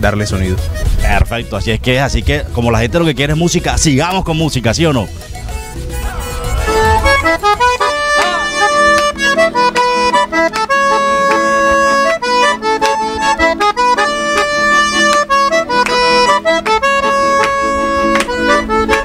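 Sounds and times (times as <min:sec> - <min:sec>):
accordion melody: 0:00.0 - 0:19.0
band accompaniment with steady beat: 0:05.1 - 0:19.0.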